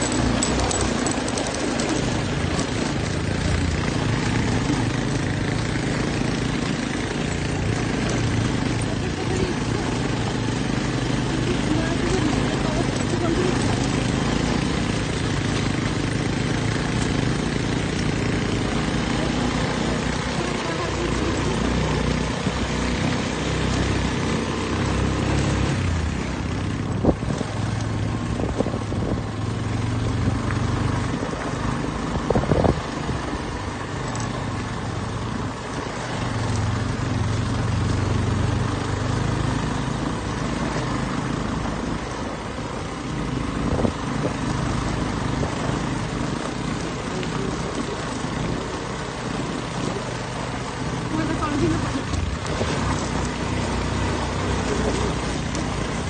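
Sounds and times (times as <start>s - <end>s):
motorcycle engine running: 0.0s - 56.0s
wind on microphone: 28.3s - 29.4s, 32.1s - 33.5s, 43.6s - 44.4s.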